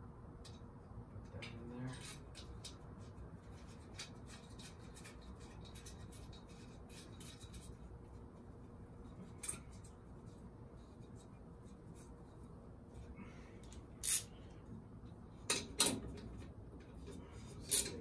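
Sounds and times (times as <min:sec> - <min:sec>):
faint steady hum: 0:00.0 - 0:18.0
clicks and scrapes of small parts: 0:01.3 - 0:08.0, 0:13.6 - 0:14.4, 0:16.8 - 0:18.0.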